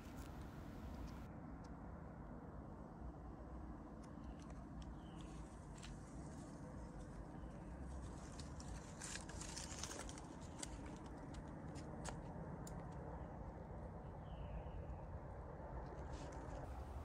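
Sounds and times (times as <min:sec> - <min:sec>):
low steady rumble: 0:00.0 - 0:17.0
small clicks and ticks: 0:04.0 - 0:06.1, 0:07.9 - 0:13.0.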